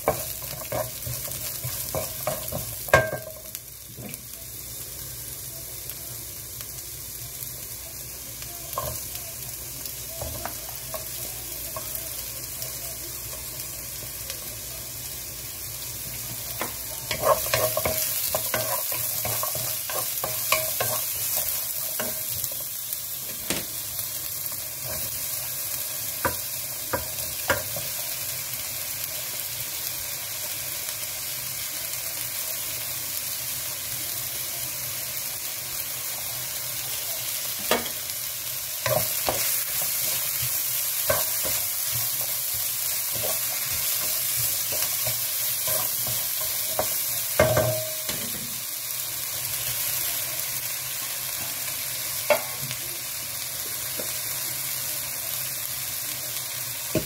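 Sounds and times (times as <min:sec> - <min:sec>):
wooden spatula tapping pan: 0:00.0 - 0:03.5
vegetables sizzling in wok: 0:00.0 - 0:57.0.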